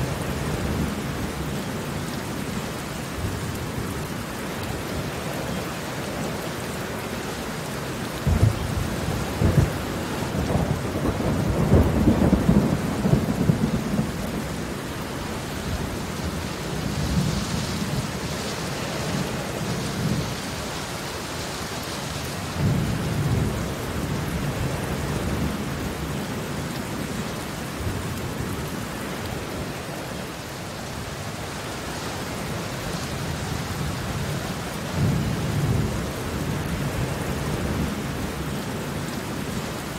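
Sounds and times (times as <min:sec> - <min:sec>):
rain on concrete: 0:00.0 - 0:39.9
low rumbles of thunder: 0:08.2 - 0:15.0, 0:33.2 - 0:38.6.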